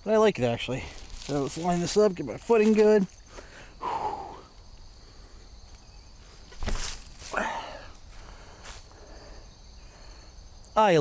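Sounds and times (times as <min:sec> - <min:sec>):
breathy throwing sound: 0:06.4 - 0:09.2
disc thump: 0:06.5 - 0:07.2.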